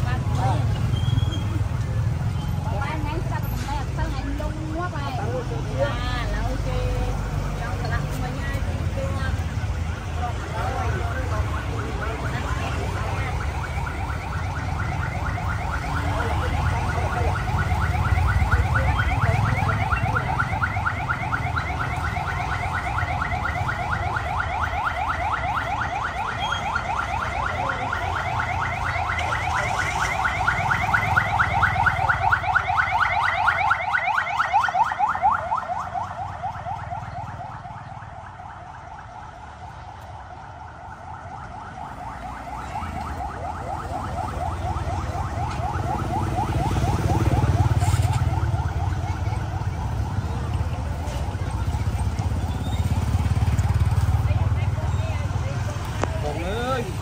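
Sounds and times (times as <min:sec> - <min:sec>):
car alarm warbling: 0:10.3 - 0:39.3, 0:40.4 - 0:51.0.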